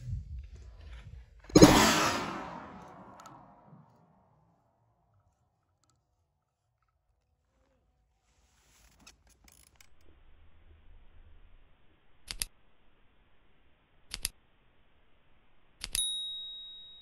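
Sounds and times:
shutter-like clicks: 12.2s - 12.6s, 14.1s - 14.4s
double mouse clicks: 12.3s - 12.5s, 14.1s - 14.3s.

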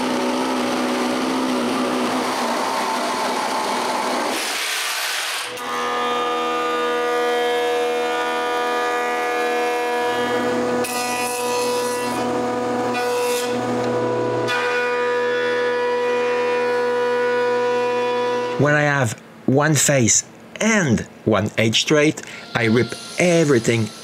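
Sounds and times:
jointer whining: 0.0s - 18.6s.

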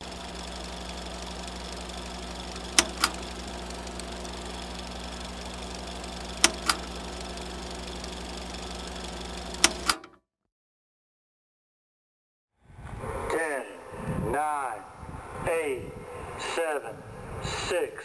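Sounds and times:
low mechanical hum: 0.0s - 10.1s
double click: 9.6s - 10.2s.

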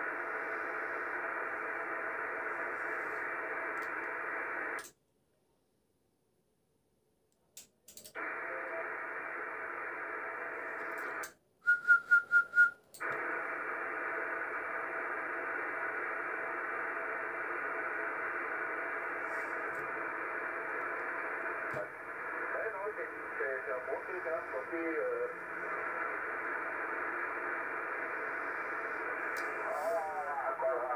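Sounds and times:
receiver hiss from speaker: 0.0s - 4.9s, 8.2s - 30.9s.

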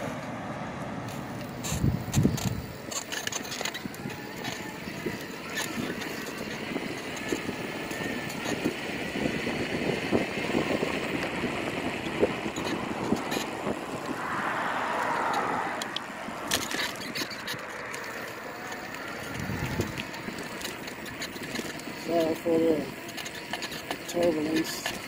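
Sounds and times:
bike road noise: 0.0s - 25.0s
bike clicks and rattles: 1.0s - 14.2s, 15.0s - 25.0s
wind rushing: 11.5s - 16.5s, 19.3s - 20.0s.

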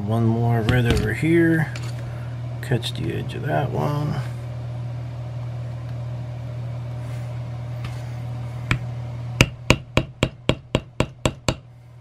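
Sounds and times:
steady low hum: 0.0s - 12.0s
mallet tapping metal stamping tool: 9.4s - 11.6s.

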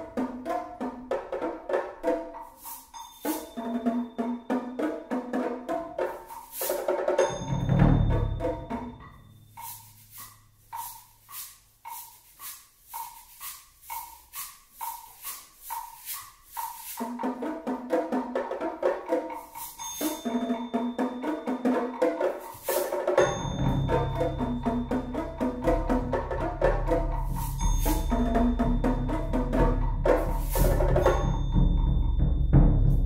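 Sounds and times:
pitched mallet percussion: 0.0s - 33.0s
percussion ticking pulse: 7.2s - 17.3s, 18.8s - 33.0s.

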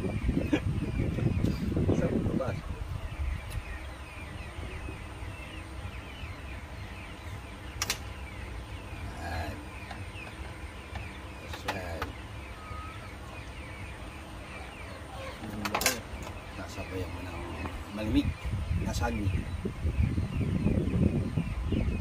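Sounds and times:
faint bird chirps: 0.0s - 22.0s.

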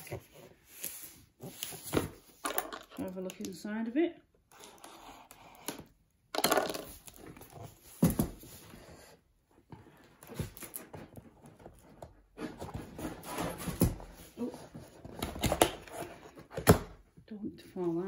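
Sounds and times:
cardboard box rustling: 9.9s - 16.6s.

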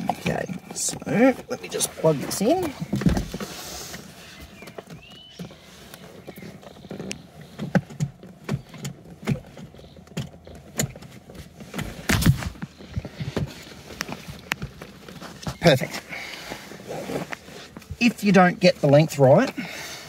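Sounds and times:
seatbelt buckle clicks and knocks: 6.3s - 15.2s.

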